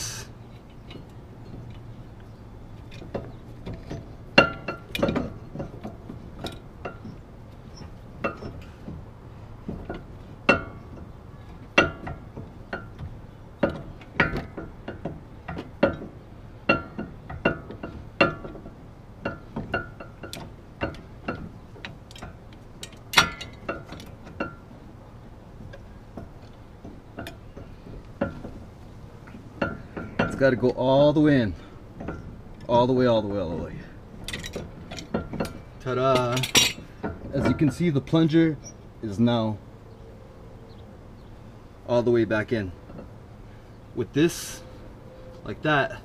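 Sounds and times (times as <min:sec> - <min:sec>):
metal clamp handle clinking: 0:16.7 - 0:24.6, 0:34.2 - 0:37.9.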